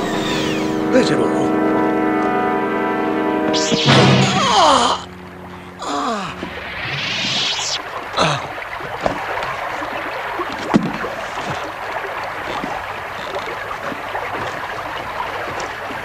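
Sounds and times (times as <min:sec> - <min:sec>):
short falling sound: 0:03.5 - 0:05.1.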